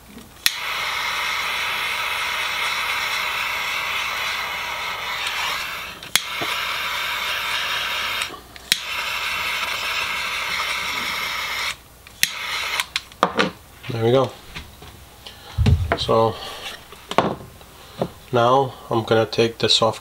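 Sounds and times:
heat tool hissing: 0.4 - 13.0.

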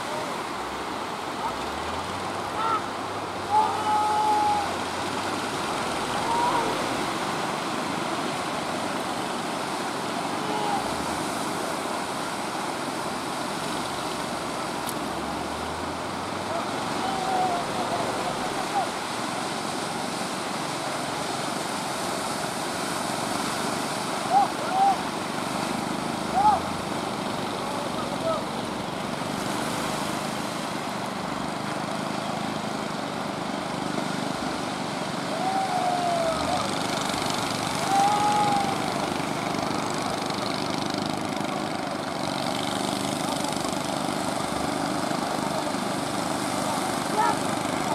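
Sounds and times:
boat engine running hard: 0.0 - 47.9
breaking surf: 0.0 - 47.9
rushing water: 0.0 - 47.9
wind: 0.0 - 47.9.

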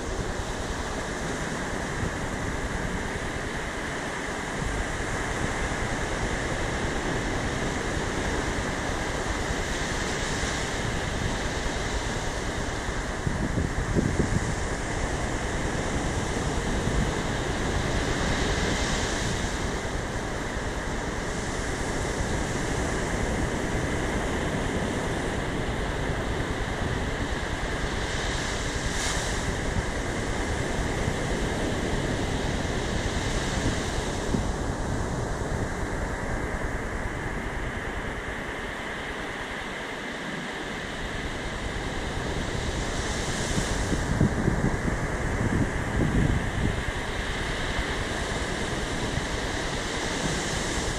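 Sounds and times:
waves breaking on beach: 0.0 - 50.9
wind rumbling on microphone: 0.0 - 50.9.

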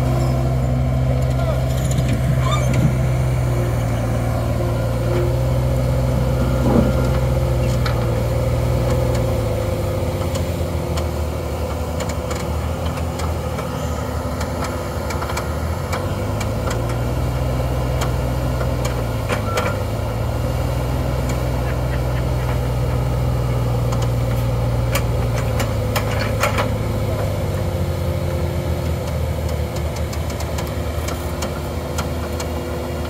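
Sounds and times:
diesel engines running: 0.0 - 33.0
excavator hydraulics working: 0.0 - 33.0.

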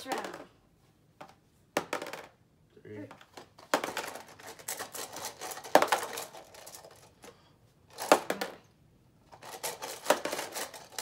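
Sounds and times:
die rattling on plastic: 3.3 - 7.1, 9.3 - 11.0
small parts clattering in metal tin: 3.9 - 7.1, 9.3 - 11.0.

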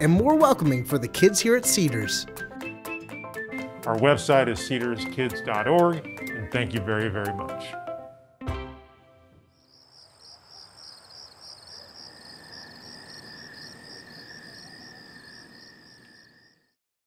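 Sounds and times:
crickets chirping: 9.6 - 16.8
high insect trill: 9.6 - 16.8.

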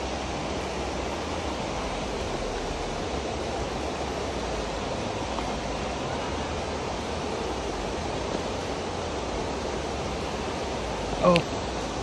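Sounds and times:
running water rushing: 0.0 - 12.0.

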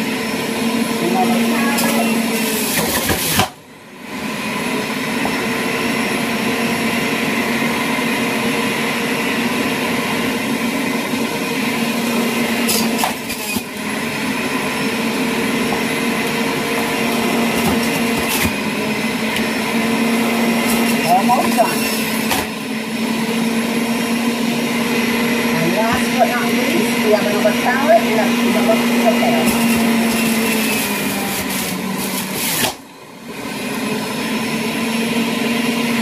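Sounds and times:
juicer motor humming: 0.0 - 36.0
carrots being shredded: 25.4 - 32.8.

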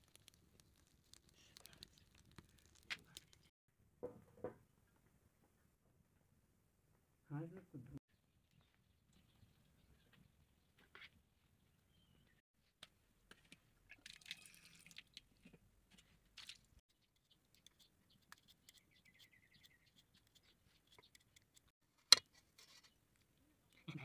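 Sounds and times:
faint scrapes and clicks: 0.0 - 3.5
peeler scraping potato skin: 17.5 - 21.7.

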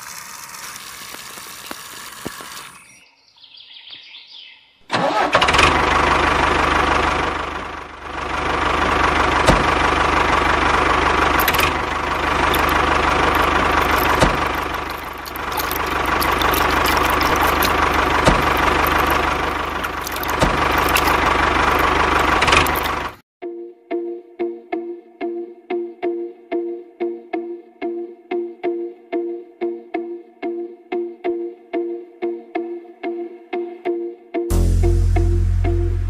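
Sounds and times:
toy tractor engine running: 4.9 - 23.2.

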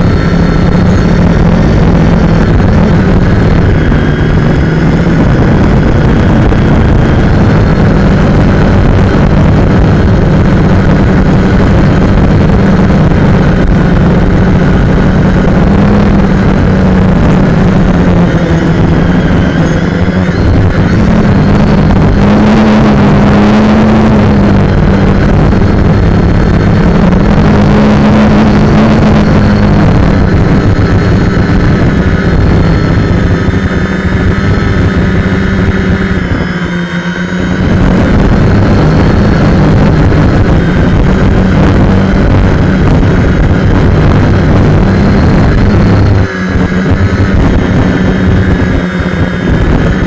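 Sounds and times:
drone motors buzzing: 0.0 - 50.0.

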